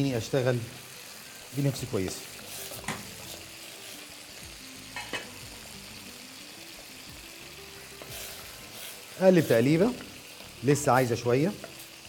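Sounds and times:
fish sizzling in a frying pan: 0:00.0 - 0:12.0
spoon knocking a steel pot: 0:05.0 - 0:05.4.

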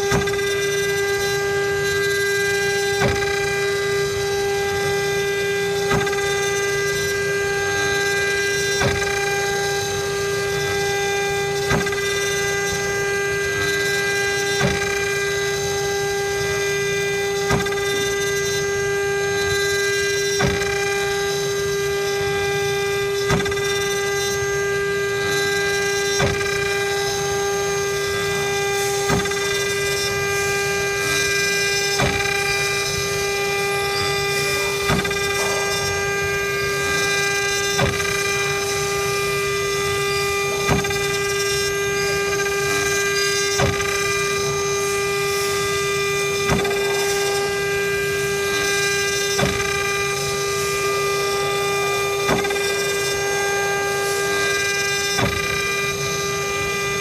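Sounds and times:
router spindle whining: 0:00.0 - 0:57.0
short knock: 0:34.6 - 0:36.7.

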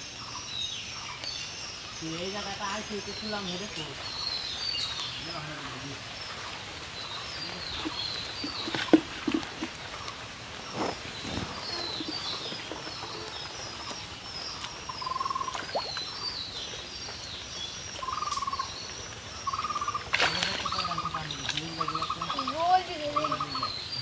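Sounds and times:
birds chirping: 0:00.0 - 0:24.0
rural outdoor ambience: 0:00.0 - 0:24.0.

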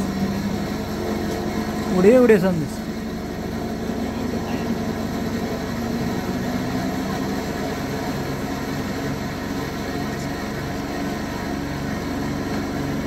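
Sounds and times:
aircraft piston engines droning: 0:00.0 - 0:13.0.

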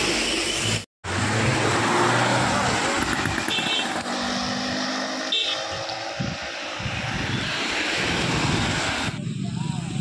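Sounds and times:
wind and road noise: 0:00.0 - 0:10.0
auto-rickshaw engine running: 0:02.4 - 0:08.6.

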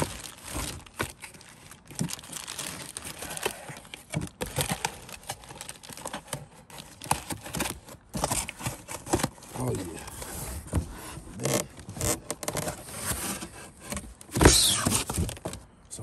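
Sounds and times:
plastic bag crinkling: 0:00.0 - 0:07.7
cardboard box flaps rustling: 0:12.1 - 0:15.6.

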